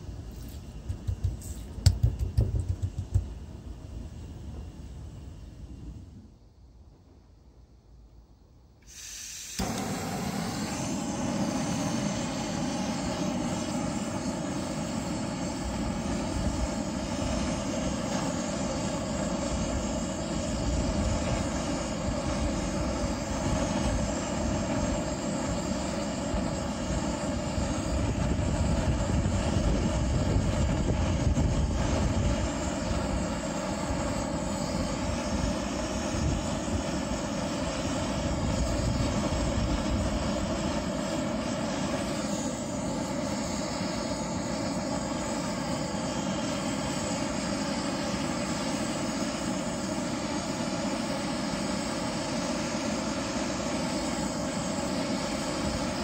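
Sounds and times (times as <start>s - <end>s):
butane torch hissing: 0.0s - 6.4s, 8.8s - 56.0s.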